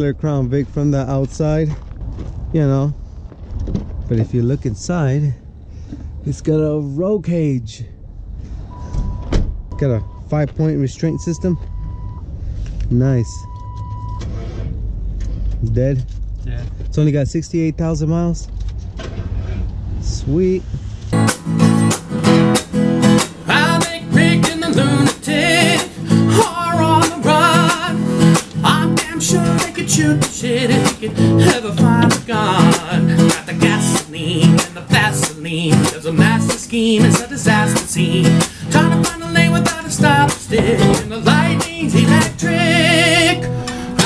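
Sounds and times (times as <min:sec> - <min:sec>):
song on strummed guitar: 0:21.2 - 0:44.0.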